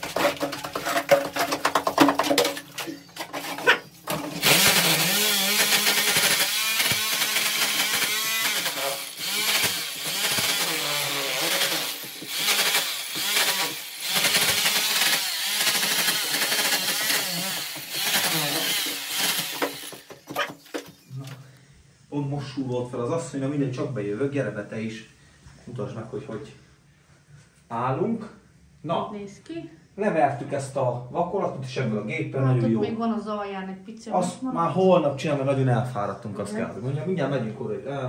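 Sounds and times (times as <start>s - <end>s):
rotary hammer chipping plaster: 4.1s - 21.0s.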